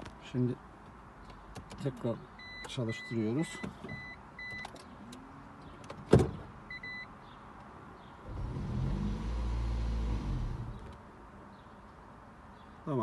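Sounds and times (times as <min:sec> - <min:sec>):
short dashboard beeps: 0:02.4 - 0:03.2
car engine humming: 0:08.2 - 0:11.1.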